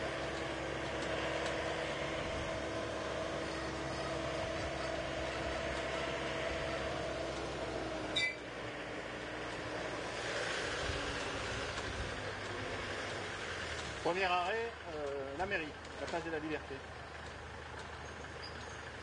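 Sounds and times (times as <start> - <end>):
road train motor hum and rumble: 0.0 - 19.0
sharp high-pitched squeak: 8.1 - 8.5, 18.0 - 18.9.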